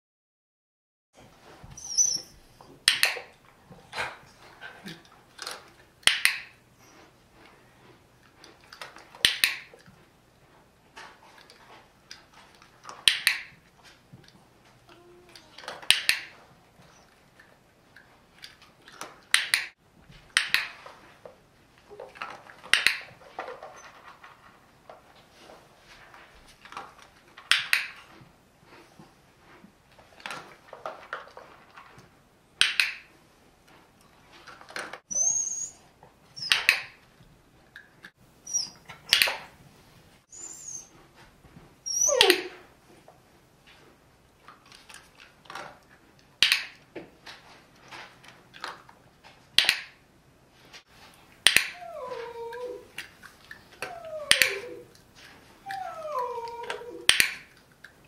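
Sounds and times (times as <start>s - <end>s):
dog whining: 1.7s - 2.8s, 14.8s - 15.8s, 35.1s - 36.8s, 38.4s - 39.3s, 40.3s - 41.0s, 41.8s - 42.7s, 51.5s - 55.0s, 55.6s - 57.5s.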